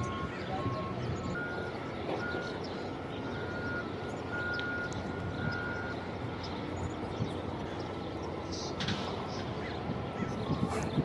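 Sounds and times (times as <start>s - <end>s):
reversing alarm beeping: 0.0s - 7.2s, 10.2s - 10.8s
construction machinery rumble: 0.0s - 11.0s
traffic: 0.0s - 11.0s.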